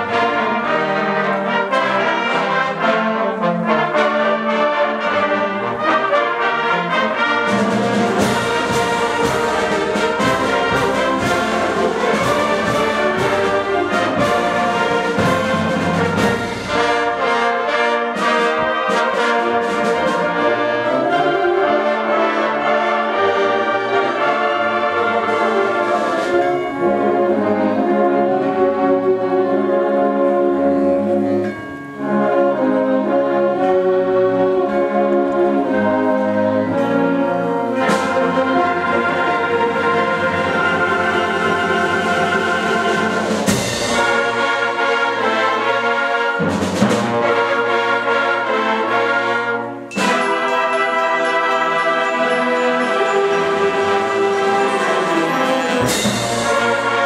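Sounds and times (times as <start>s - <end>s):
concert band playing chords: 0.0s - 57.0s.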